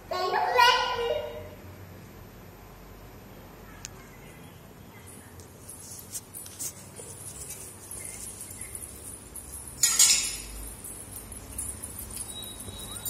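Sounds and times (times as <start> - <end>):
steel utensil clinking on marble: 7.4 - 13.0.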